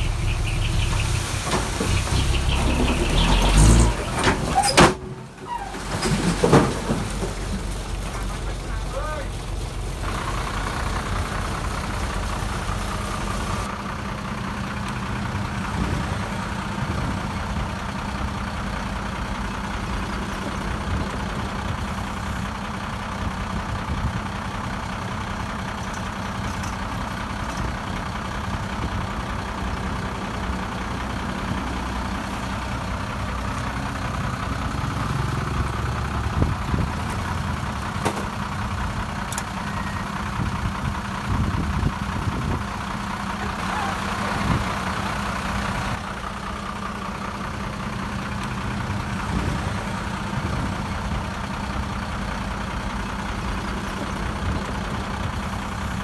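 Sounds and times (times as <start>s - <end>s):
heavy diesel engine running: 0.0s - 56.0s.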